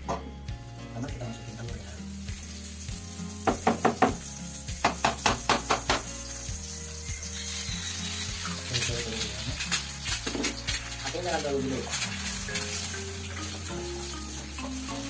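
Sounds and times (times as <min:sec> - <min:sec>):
food sizzling in a pan: 0:00.0 - 0:15.0
sharp knocks: 0:04.8 - 0:06.1.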